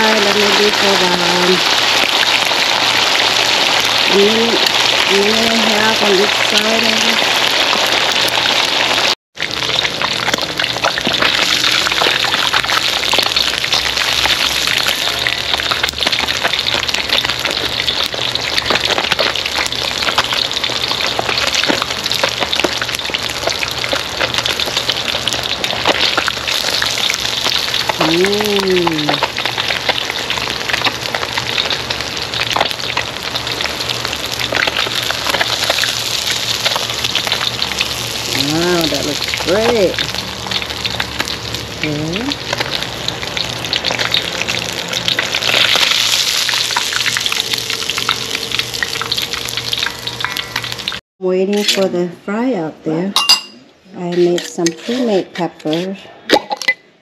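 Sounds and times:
food sizzling in hot oil: 0.0 - 51.0.

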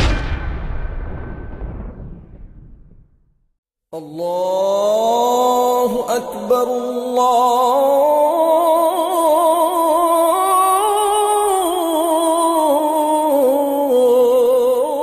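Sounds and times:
person singing wordless melody: 3.9 - 15.0.

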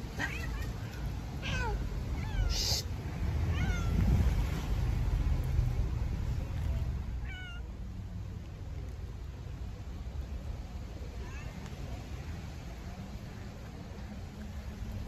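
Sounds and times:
cat meowing: 0.2 - 4.1, 7.2 - 7.7.

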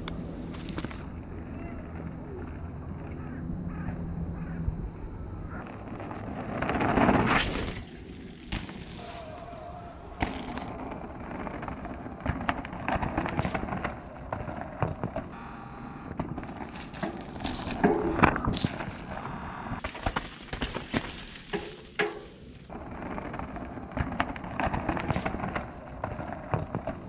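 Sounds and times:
bike tyres on dirt trail: 0.0 - 27.0
bike clicks and knocks: 10.2 - 15.4, 16.1 - 19.1, 19.8 - 27.0.

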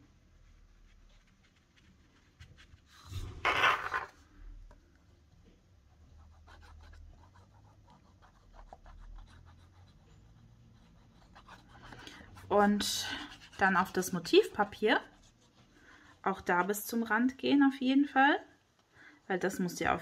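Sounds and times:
paper rustling and sliding: 2.7 - 4.2.

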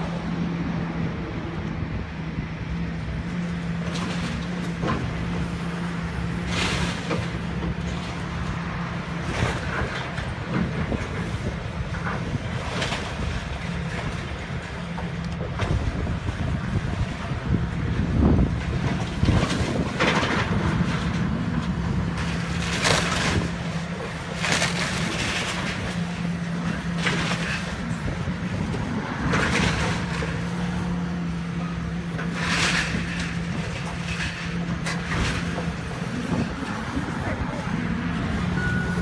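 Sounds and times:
excavator diesel engine running: 0.0 - 39.0
wood and debris crashing: 18.5 - 30.8, 32.2 - 36.9.

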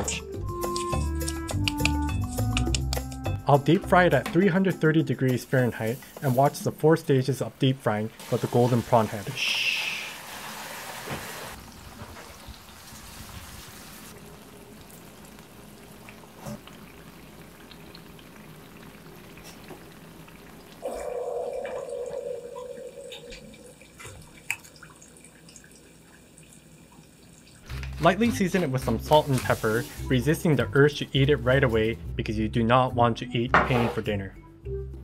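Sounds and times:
oil sizzling: 5.5 - 6.7, 8.1 - 30.5.

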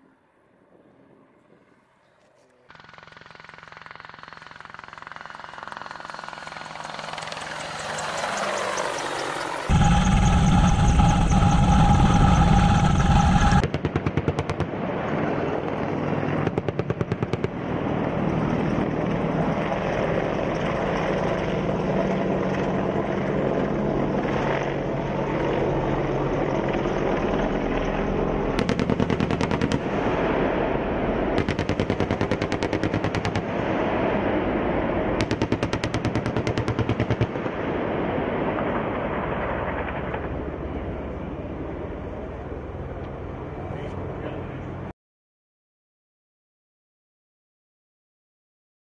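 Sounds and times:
helicopter turbine engine whine: 2.7 - 13.8, 17.3 - 44.9
helicopter rotor pulsing: 2.7 - 37.6.

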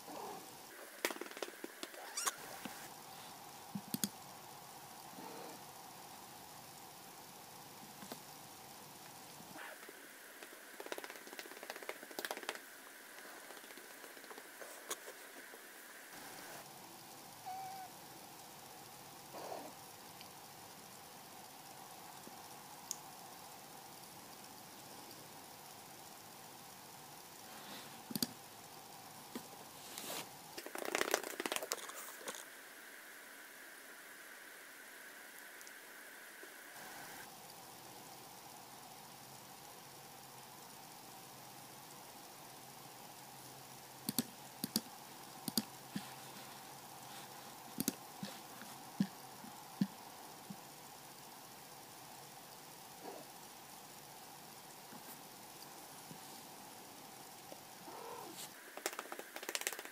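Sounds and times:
steady low hiss: 0.0 - 59.9
rustling and crackling: 29.3 - 32.5, 45.9 - 49.2
hand rubbing cat fur: 29.7 - 32.2, 45.9 - 48.8.

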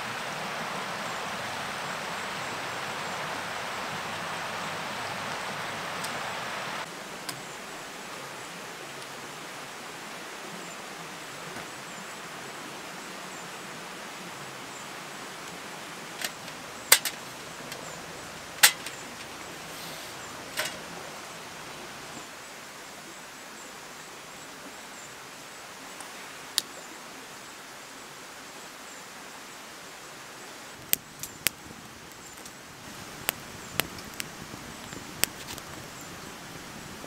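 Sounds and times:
mountain stream rushing: 0.0 - 37.0
camp chair and table clicks: 16.1 - 21.0, 30.8 - 32.6, 33.2 - 36.0.

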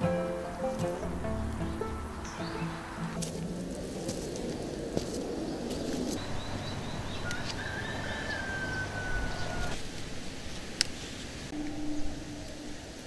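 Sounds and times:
steady background noise: 0.0 - 13.0
bird chirps: 0.9 - 3.2, 5.5 - 9.7.

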